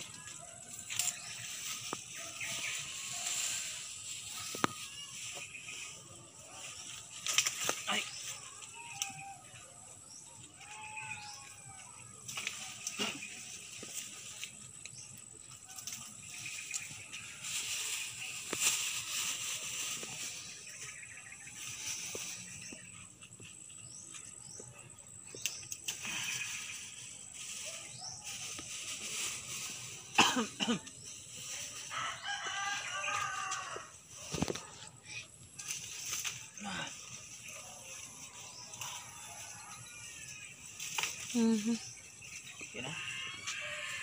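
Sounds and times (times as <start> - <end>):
palm fronds rustling: 0.0 - 44.0
roosters crowing: 10.3 - 12.3, 31.7 - 34.7, 42.8 - 44.0.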